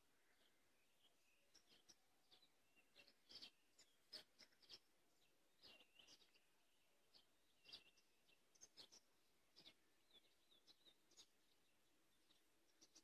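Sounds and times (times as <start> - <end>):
faint songbirds chirping: 0.0 - 13.0.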